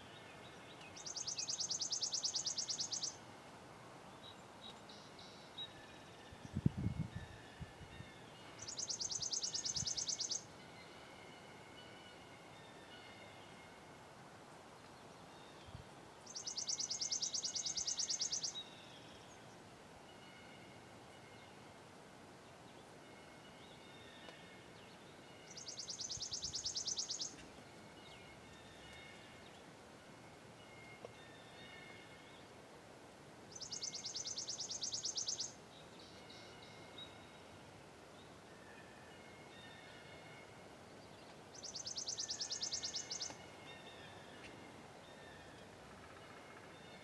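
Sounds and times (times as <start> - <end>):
songbird trilling: 1.0 - 3.2, 8.6 - 10.5, 16.3 - 18.7, 25.5 - 27.4, 33.5 - 35.6.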